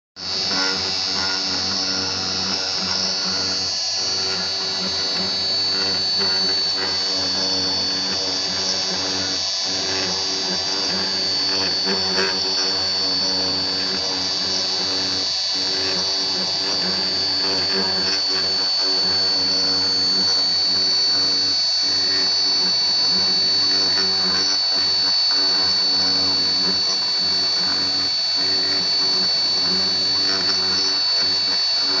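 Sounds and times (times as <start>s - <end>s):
milling spindle whining: 0.2s - 32.0s.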